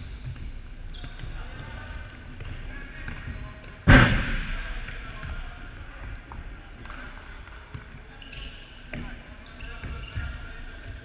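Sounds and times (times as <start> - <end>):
court noise: 0.0 - 11.0
ball struck with loud bang: 3.9 - 5.0.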